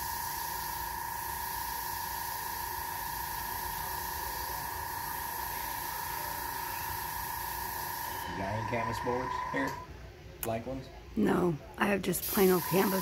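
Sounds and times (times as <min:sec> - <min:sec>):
airbrush hissing: 0:00.0 - 0:08.2, 0:12.2 - 0:13.0
steady high tone: 0:02.5 - 0:10.0.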